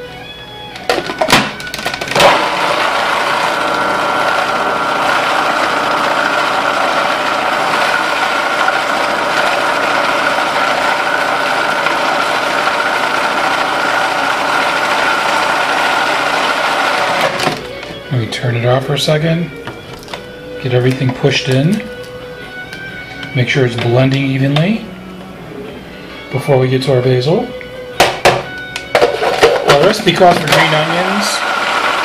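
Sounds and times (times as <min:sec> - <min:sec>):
food processor running: 0:00.9 - 0:17.9, 0:28.9 - 0:32.0.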